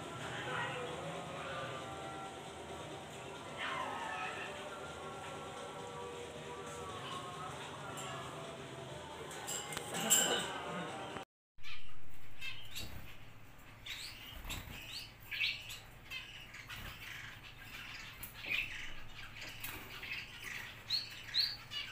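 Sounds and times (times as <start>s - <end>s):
finches chirping: 11.6s - 21.9s.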